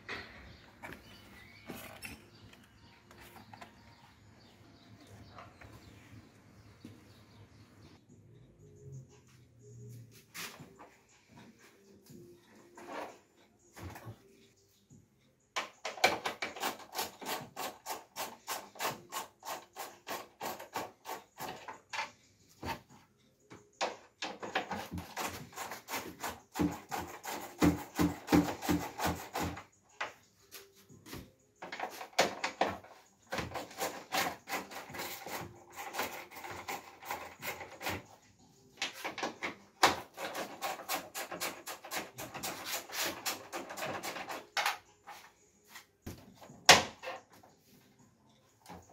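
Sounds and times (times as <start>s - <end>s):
hand tools clicking and scraping: 0.0s - 3.9s, 15.6s - 47.6s.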